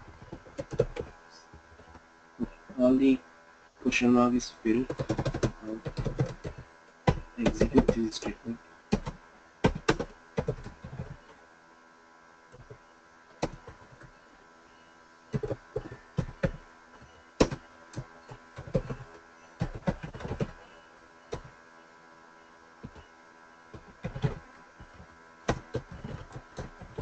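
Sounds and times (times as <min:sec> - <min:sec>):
faint steady hum: 0:00.0 - 0:27.0
keyboard typing clicks: 0:00.2 - 0:01.2, 0:04.9 - 0:11.3, 0:13.4 - 0:14.2, 0:15.3 - 0:21.5, 0:23.7 - 0:27.0.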